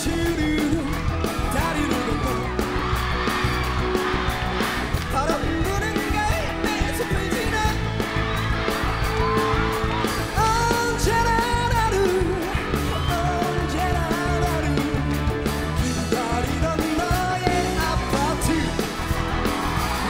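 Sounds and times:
lead singer singing: 0:00.0 - 0:20.0
live pop-rock band: 0:00.0 - 0:20.0.

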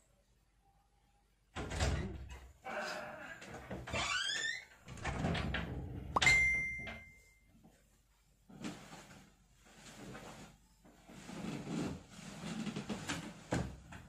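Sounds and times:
short ringing tone: 0:06.2 - 0:07.5
rustling on a bed: 0:08.5 - 0:13.9.

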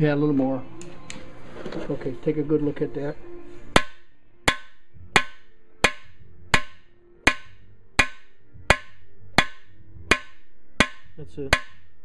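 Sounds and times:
hammer striking steel: 0:03.7 - 0:12.0.

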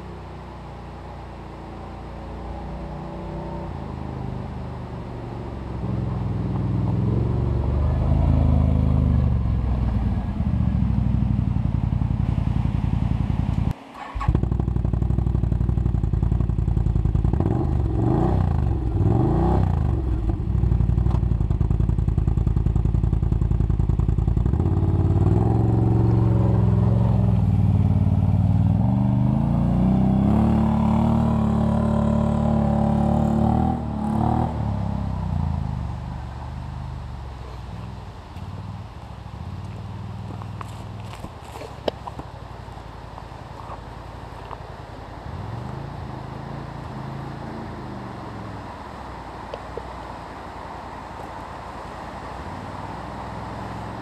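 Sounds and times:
quad bike engine revving: 0:02.9 - 0:11.4, 0:13.4 - 0:36.0.

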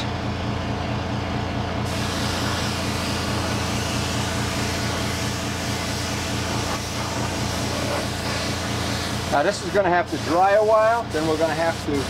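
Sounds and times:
low motor hum: 0:00.0 - 0:09.8
paint spray gun hissing: 0:01.8 - 0:12.0.

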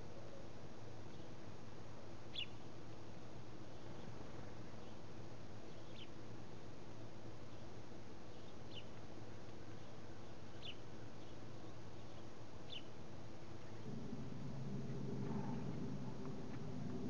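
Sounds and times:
low background hum: 0:00.0 - 0:17.0
sparrow chirping: 0:02.3 - 0:02.6, 0:05.7 - 0:06.2, 0:08.3 - 0:08.9, 0:10.5 - 0:12.9.

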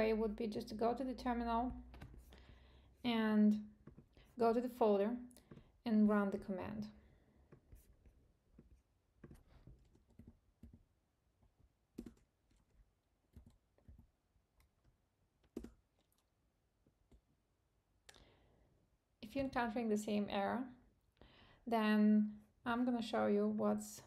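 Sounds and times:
computer keyboard keystrokes: 0:12.0 - 0:12.7.

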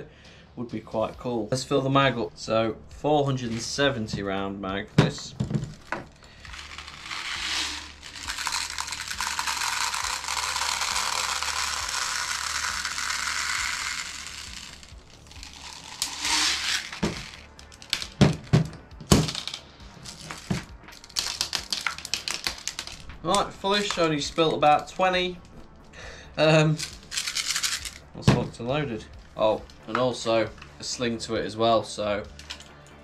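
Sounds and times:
plastic pellets pouring rattling: 0:05.4 - 0:24.4, 0:26.7 - 0:28.1
magazine clicks and rattles: 0:05.5 - 0:24.2, 0:26.8 - 0:28.1, 0:32.3 - 0:32.8.

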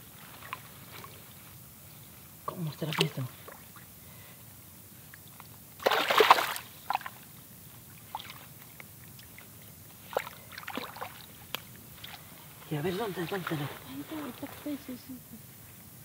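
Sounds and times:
water splashing: 0:05.8 - 0:07.1, 0:10.1 - 0:11.4.

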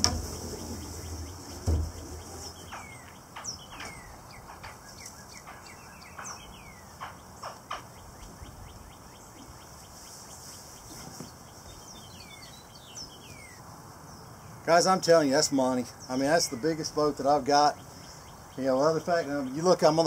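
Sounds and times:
dull thump: 0:00.0 - 0:03.0
bird chirping: 0:00.0 - 0:20.0
sharp knocks: 0:05.4 - 0:07.9.

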